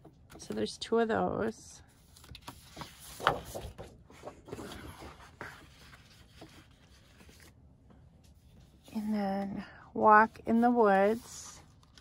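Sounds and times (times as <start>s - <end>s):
paper sheets rustling: 2.0s - 7.5s.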